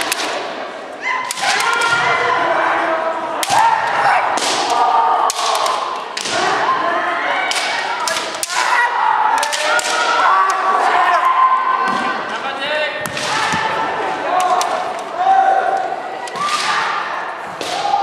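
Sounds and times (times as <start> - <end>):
bamboo swords clacking: 0.0 - 0.5, 7.5 - 10.6, 14.3 - 15.2.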